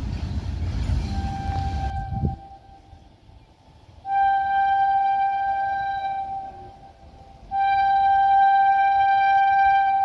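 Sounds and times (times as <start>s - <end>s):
locomotive horn: 1.0s - 3.0s, 4.0s - 10.0s.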